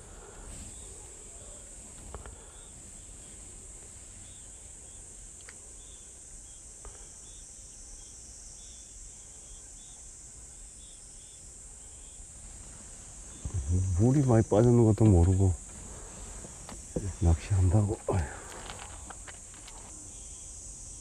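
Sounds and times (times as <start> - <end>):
insects trilling: 0.0 - 21.0
faint clicks: 5.4 - 5.6, 18.0 - 20.0.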